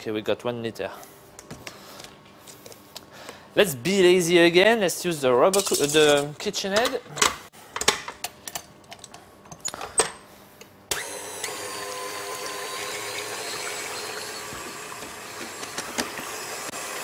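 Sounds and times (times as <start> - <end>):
stand mixer whisking cream: 11.1 - 17.0.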